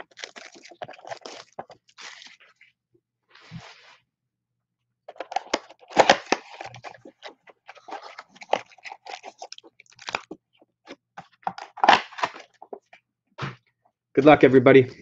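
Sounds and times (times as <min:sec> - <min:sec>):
foil packs crinkling: 0:00.0 - 0:02.6, 0:05.1 - 0:10.4
cardboard box tearing open: 0:05.2 - 0:10.3.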